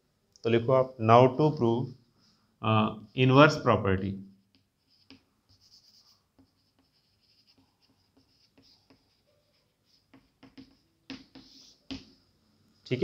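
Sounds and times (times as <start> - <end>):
chalk scratching on blackboard: 4.4 - 12.2
sharp chalk taps: 4.4 - 12.2.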